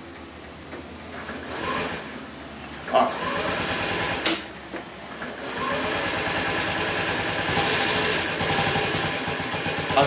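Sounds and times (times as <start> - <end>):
scooter engine whirring: 2.9 - 4.2, 5.2 - 10.0.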